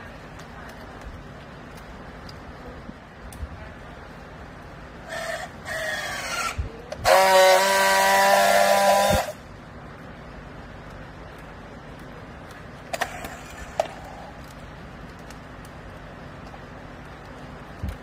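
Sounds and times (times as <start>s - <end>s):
strapping tool motor whine: 5.1s - 9.4s
strapping tool loud buzz: 5.7s - 9.4s.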